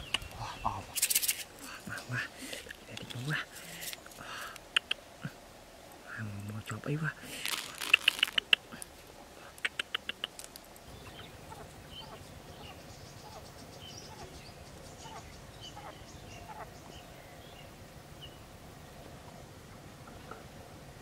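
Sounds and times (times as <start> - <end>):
sharp clicks: 9.6 - 10.6
quail chirping calls: 9.6 - 18.4.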